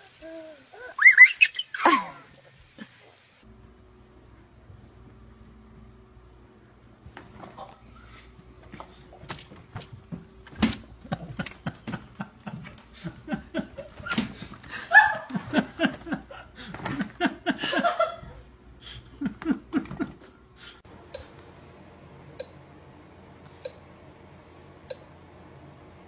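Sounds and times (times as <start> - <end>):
person laughing: 11.0 - 20.8.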